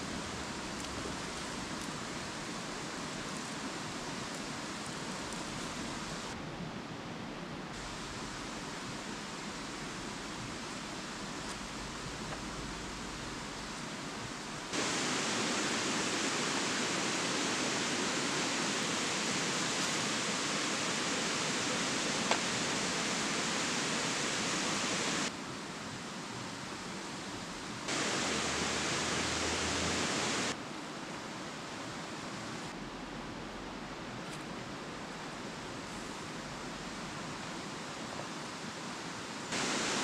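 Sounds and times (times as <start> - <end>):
rocky stream rushing: 7.8 - 25.4, 27.9 - 30.6, 35.2 - 40.0.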